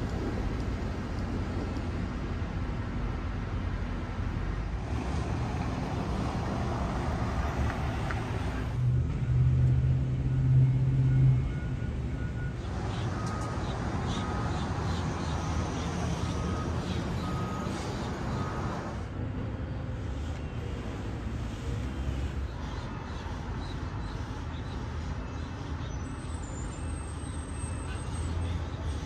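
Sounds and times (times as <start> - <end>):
street traffic rumble: 0.0 - 29.0
backup alarm beeping: 10.1 - 19.0.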